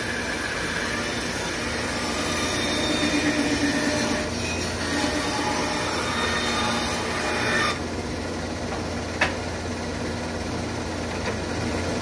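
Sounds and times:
bandsaw cutting wood: 0.0s - 7.8s.

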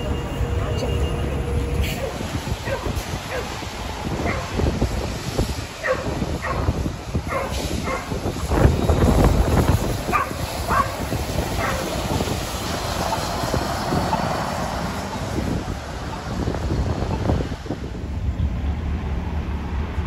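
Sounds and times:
heavy vehicle passing: 0.0s - 20.0s
dog barking: 2.6s - 3.5s, 4.2s - 4.5s, 5.8s - 6.7s, 7.3s - 8.1s, 10.1s - 11.0s, 11.6s - 11.9s.

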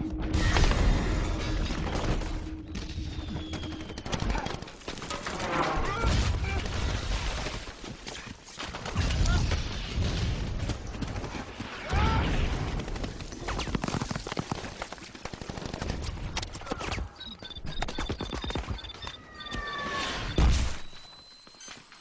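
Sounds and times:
rapid gunfire: 3.3s - 5.1s, 8.4s - 16.3s
explosions: 8.9s - 10.9s
high broken beeping: 16.8s - 22.0s
falling whistle: 18.8s - 22.0s.

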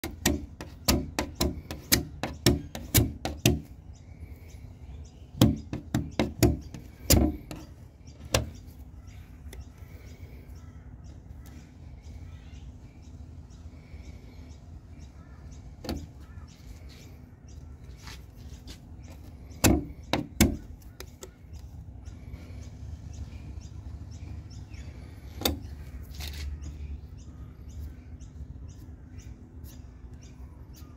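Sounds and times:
sharp knocks: 5.4s - 7.7s.

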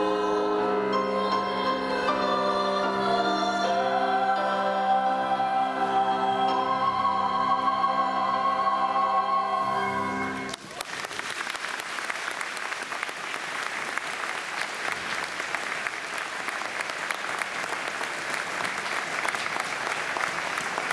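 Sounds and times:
choir and flutes singing chord: 0.0s - 10.5s
audience applause: 10.4s - 20.9s.

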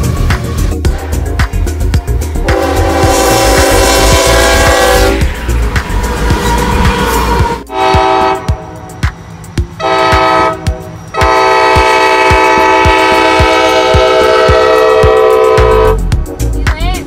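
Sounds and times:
train wheels clattering: 0.0s - 16.0s
locomotive air horn blasts: 2.4s - 5.3s, 6.0s - 9.0s, 9.8s - 16.0s.

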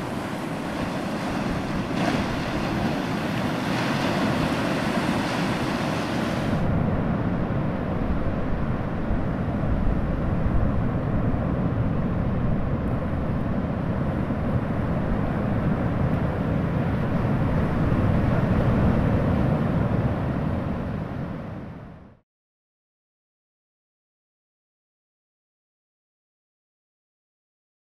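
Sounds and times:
ocean surf on rocky shore: 0.0s - 21.8s.

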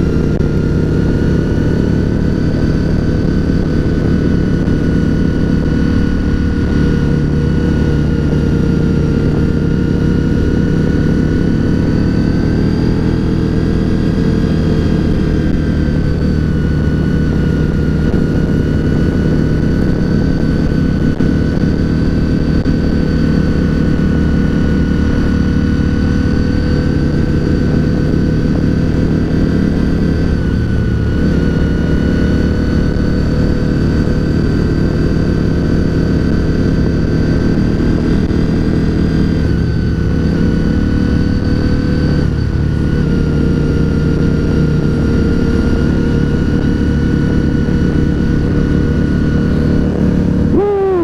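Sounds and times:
motorcycle engine cruising: 0.0s - 51.0s
high whine: 48.3s - 51.0s.

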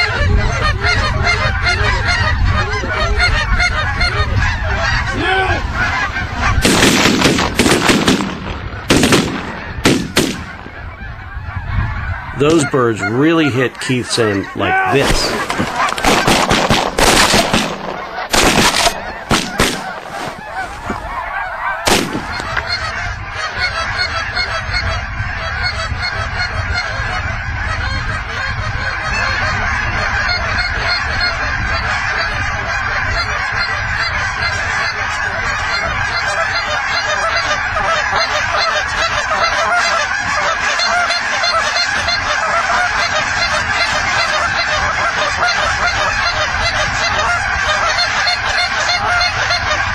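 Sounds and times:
geese honking: 0.0s - 49.9s
sharp bangs: 6.6s - 10.8s, 15.0s - 21.0s, 21.8s - 22.7s.

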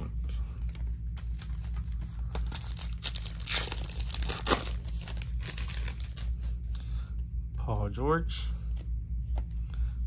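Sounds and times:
foil wrapper tearing and crinkling: 2.3s - 6.2s.

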